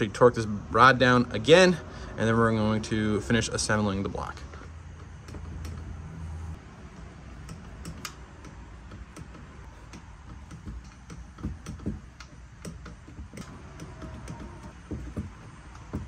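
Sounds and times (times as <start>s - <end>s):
ratchet wrench clicking: 6.9s - 16.0s
dull knocks: 8.9s - 16.0s.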